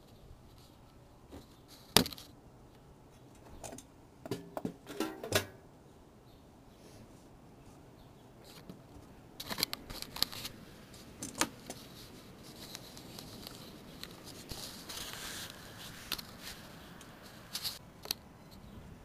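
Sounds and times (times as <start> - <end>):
faint rustling: 6.8 - 17.8
light clicks and rattles: 8.5 - 18.7.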